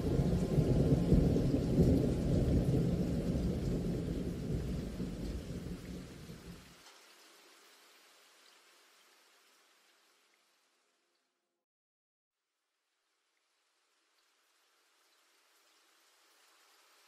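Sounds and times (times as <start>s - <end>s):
thunder rumbling: 0.0s - 6.6s
steady rain: 0.0s - 11.1s, 13.0s - 17.0s.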